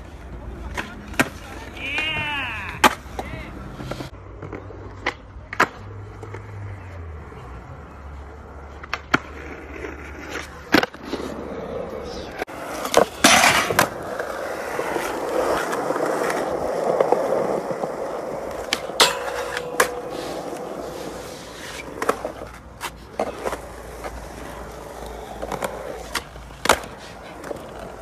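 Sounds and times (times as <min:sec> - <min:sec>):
skateboard wheels rolling on concrete: 0:00.0 - 0:28.0
skateboard clacks: 0:00.1 - 0:06.6, 0:08.5 - 0:11.4, 0:12.0 - 0:28.0
skateboard sliding on metal rail: 0:12.0 - 0:28.0.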